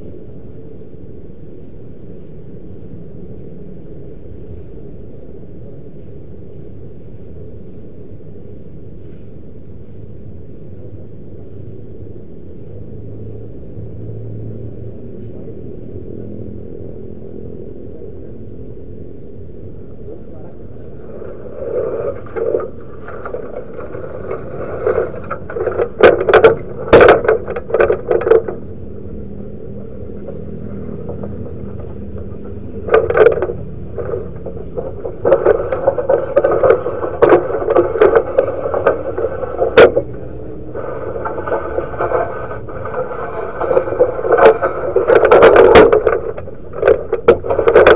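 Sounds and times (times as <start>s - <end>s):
dove cooing: 19.7s - 46.6s.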